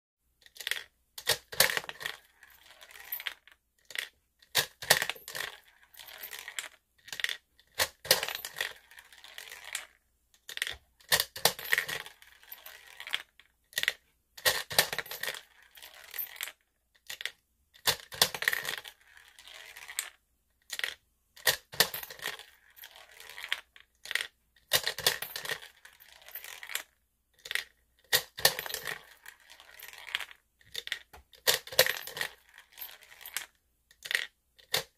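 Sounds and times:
coins clinking: 7.2s - 9.6s, 13.8s - 16.5s, 21.4s - 26.8s, 27.4s - 33.4s.

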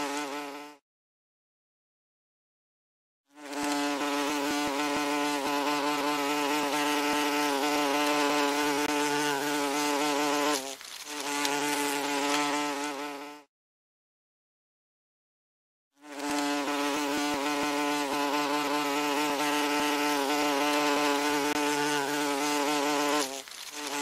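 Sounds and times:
wasp buzzing: 0.0s - 0.8s, 3.3s - 13.5s, 16.0s - 24.0s.

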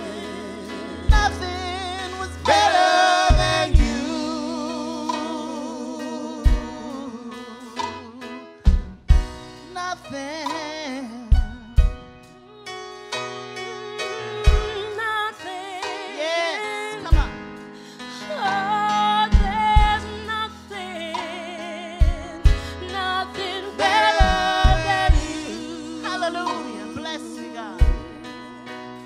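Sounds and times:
gospel singer with vibrato: 0.0s - 8.8s, 9.5s - 29.0s
keyboard: 0.0s - 29.0s
kick drum thumping: 8.7s - 9.5s, 24.2s - 25.4s.

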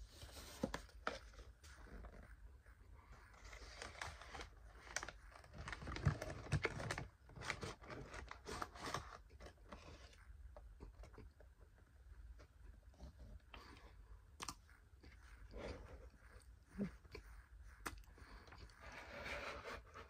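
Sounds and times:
chewing dry cornstarch: 0.8s - 8.5s, 13.3s - 20.0s.

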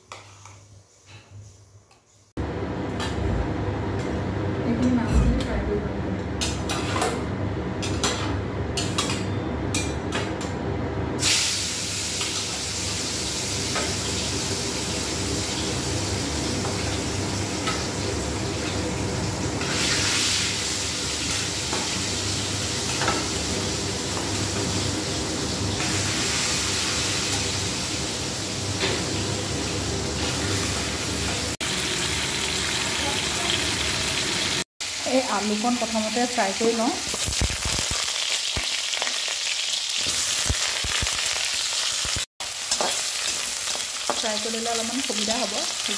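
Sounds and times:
fish sizzling in hot oil: 11.2s - 45.9s.

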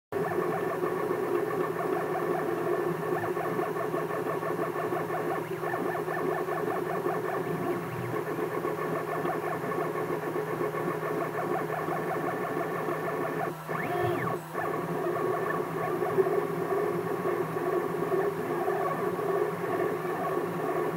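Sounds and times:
stepper motors whining: 13.4s - 16.4s.

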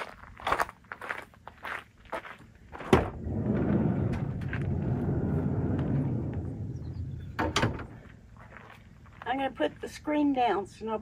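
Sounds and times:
sliding door rumbling on track: 2.9s - 8.0s.

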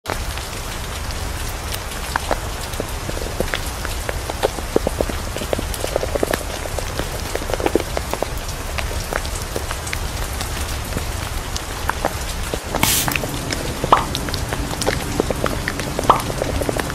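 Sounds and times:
rain falling: 0.1s - 16.9s.

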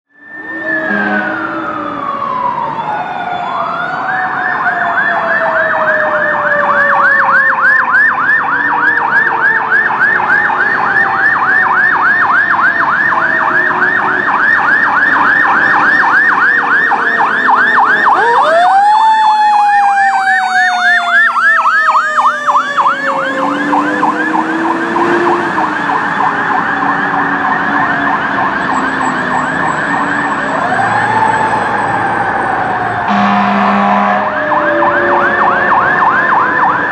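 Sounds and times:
second siren tone: 0.1s - 3.9s, 28.0s - 36.9s
fire engine siren yelp: 0.1s - 36.9s
siren wail: 0.1s - 36.9s.

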